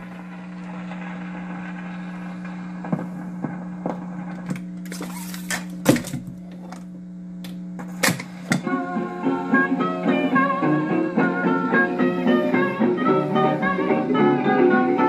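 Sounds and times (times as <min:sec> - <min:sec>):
electrical hum: 0:00.0 - 0:15.0
record changer clicks and clunks: 0:02.4 - 0:08.8.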